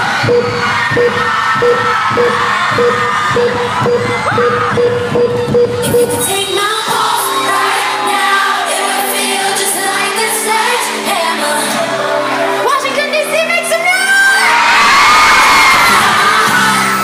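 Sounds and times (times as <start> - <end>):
heavy beat: 0.0 - 7.1
held synth chords: 0.0 - 13.8
woman singing: 5.4 - 14.6.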